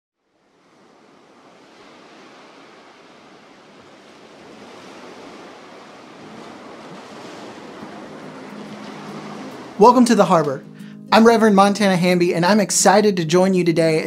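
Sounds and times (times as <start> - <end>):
ocean surf washing onto beach: 0.2 - 14.0.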